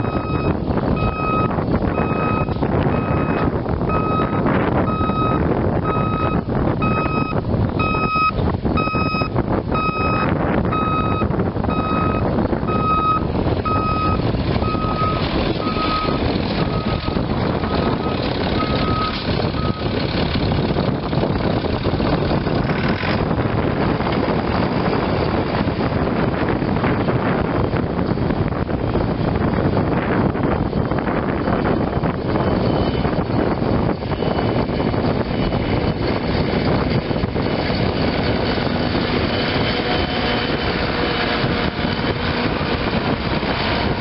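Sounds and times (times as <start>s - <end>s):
vehicle backup alarm beeping: 0.0s - 19.9s
wind on microphone: 0.0s - 44.0s.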